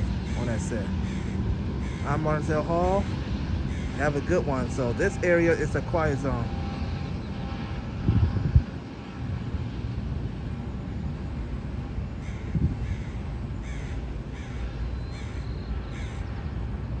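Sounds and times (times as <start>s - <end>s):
steady low rumble: 0.0s - 17.0s
crow cawing: 0.2s - 2.8s, 3.6s - 4.5s, 12.2s - 16.4s.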